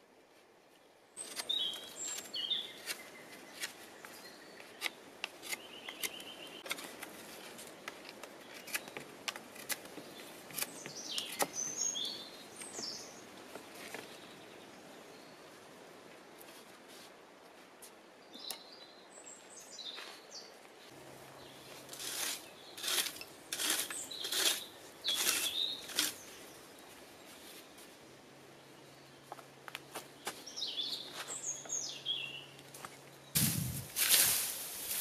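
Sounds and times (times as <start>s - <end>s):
birds chirping: 1.2s - 6.7s, 10.0s - 15.6s, 18.2s - 27.6s, 28.6s - 33.9s.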